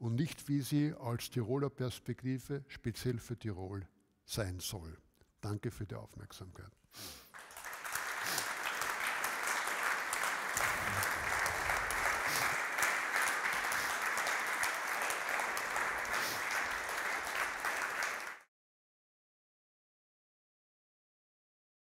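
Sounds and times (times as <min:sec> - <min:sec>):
audience applauding: 0:07.3 - 0:18.5.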